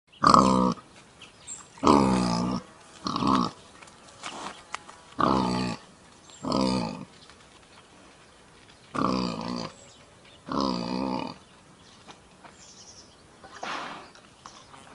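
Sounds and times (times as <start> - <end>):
warthog grunting: 0.2 - 0.8, 1.8 - 3.6, 5.2 - 7.1, 8.9 - 9.8, 10.4 - 11.4.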